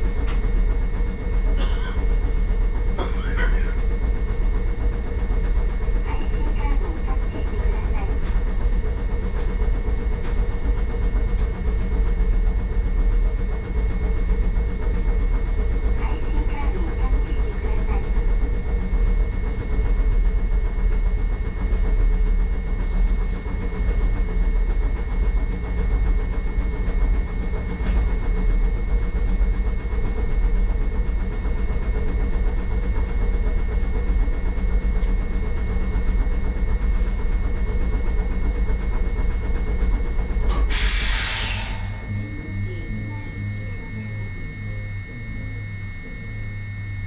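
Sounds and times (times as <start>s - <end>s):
tram equipment humming and rumbling: 0.0s - 47.0s
compressed air hissing: 40.7s - 42.0s.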